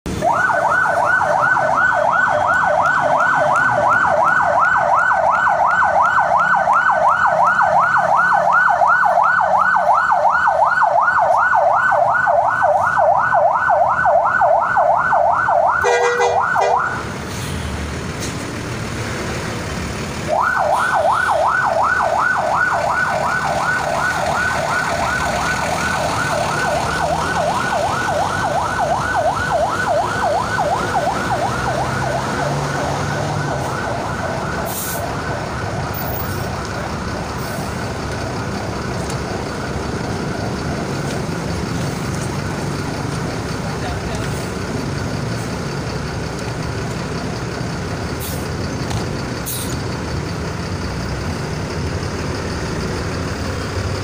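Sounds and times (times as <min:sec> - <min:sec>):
vehicle and crowd background: 0:00.1 - 0:54.0
electronic siren yelping: 0:00.2 - 0:17.0, 0:20.3 - 0:36.6.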